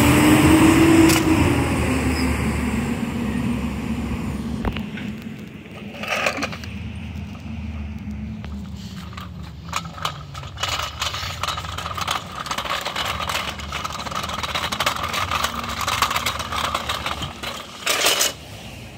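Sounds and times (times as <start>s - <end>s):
garbage truck engine rumble: 0.0s - 18.9s
rattling and scraping clatter: 4.6s - 18.6s.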